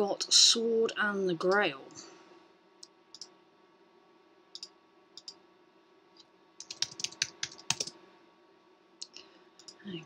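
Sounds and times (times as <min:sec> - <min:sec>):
computer keyboard typing: 0:06.6 - 0:08.0.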